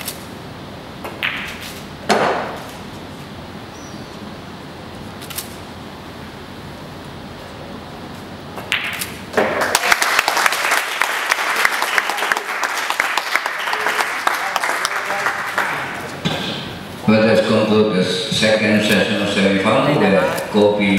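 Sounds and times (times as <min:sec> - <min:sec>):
audience applause: 0:09.6 - 0:16.1.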